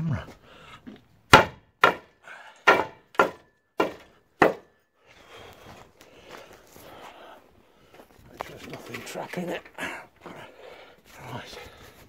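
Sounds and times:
hammer striking concrete: 0:01.3 - 0:04.7.

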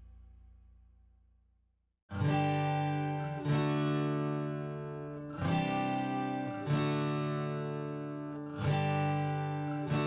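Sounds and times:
acoustic guitar strumming chords: 0:02.1 - 0:10.0.

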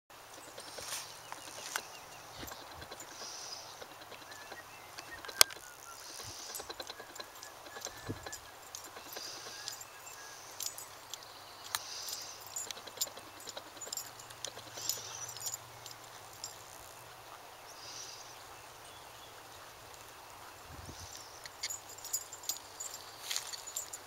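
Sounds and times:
outdoor ambience: 0:00.1 - 0:24.0
horse hoofbeats on dry ground: 0:00.2 - 0:11.0.

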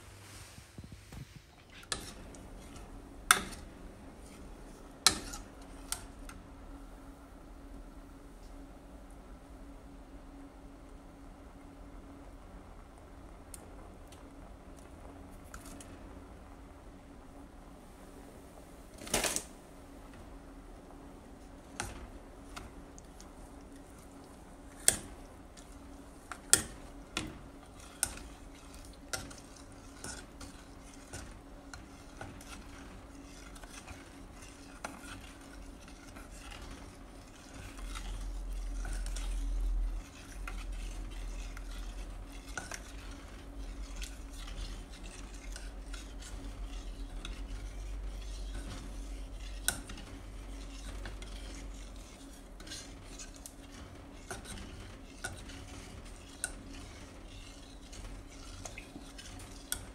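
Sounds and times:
spoon scraping metal pot: 0:01.7 - 0:04.4, 0:05.0 - 0:06.4, 0:21.8 - 0:59.9.

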